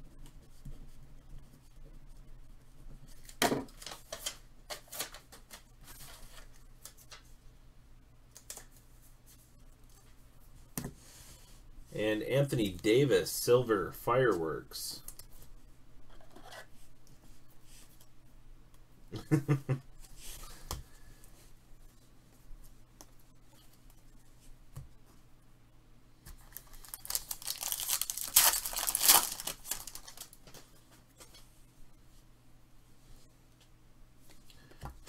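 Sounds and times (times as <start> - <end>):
foil wrapper tearing and crinkling: 26.5 - 30.4.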